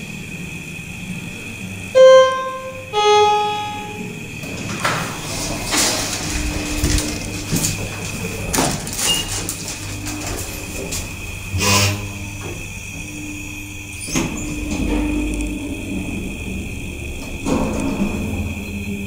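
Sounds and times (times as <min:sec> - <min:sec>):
elevator doors sliding open: 0:01.6 - 0:19.0
elevator two-tone chime: 0:02.0 - 0:04.4.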